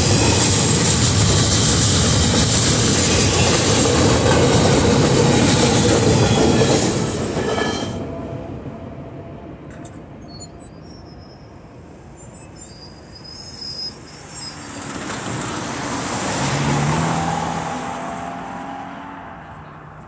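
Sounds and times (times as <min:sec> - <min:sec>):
crossing gate mechanism squealing: 0:10.2 - 0:11.5, 0:12.2 - 0:15.1
car driving past: 0:15.6 - 0:20.0.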